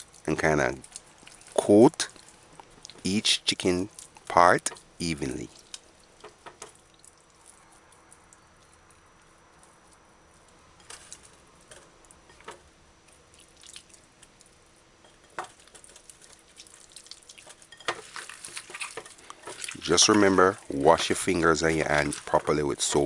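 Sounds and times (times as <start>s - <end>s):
wet squishes of raw chicken: 0.0s - 3.1s, 5.4s - 8.9s, 13.1s - 14.5s, 15.5s - 22.4s.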